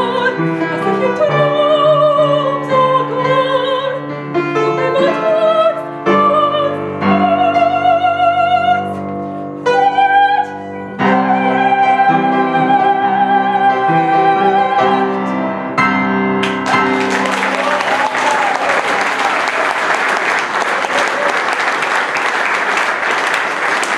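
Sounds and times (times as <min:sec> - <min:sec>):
woman singing opera: 0:00.0 - 0:04.0, 0:04.6 - 0:15.3
piano accompaniment: 0:00.0 - 0:23.9
applause: 0:16.4 - 0:23.9.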